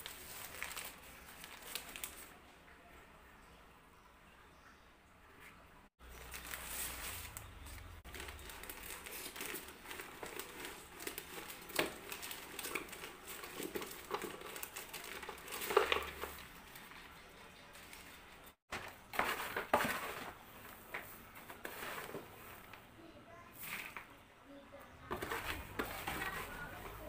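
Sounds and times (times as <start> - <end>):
plastic bag crinkling: 0.0 - 2.3, 6.0 - 20.8.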